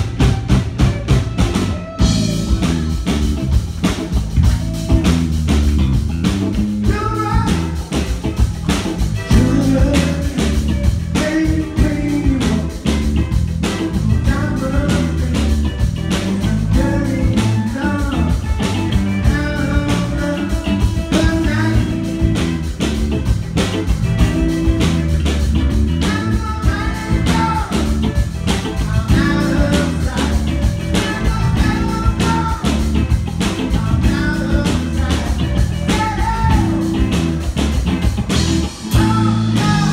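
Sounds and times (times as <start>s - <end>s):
live rock band playing: 0.0s - 39.9s
person singing: 6.8s - 22.5s, 26.0s - 37.3s, 38.9s - 39.9s.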